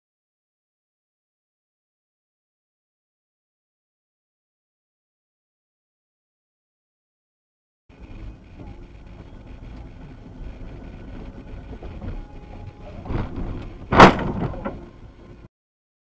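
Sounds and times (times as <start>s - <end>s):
car road rumble: 7.9s - 15.5s
loud vehicle collision bang: 13.0s - 15.0s.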